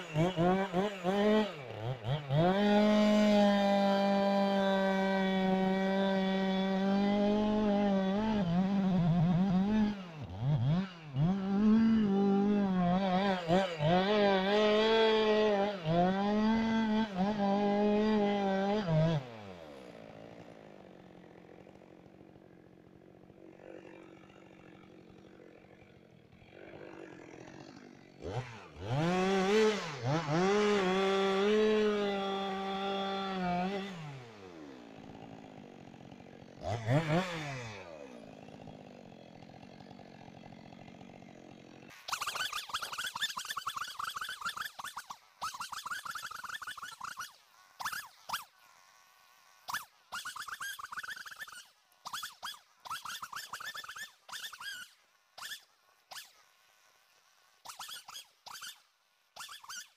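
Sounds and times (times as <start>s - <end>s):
chainsaw cutting a tree: 0.0s - 59.9s.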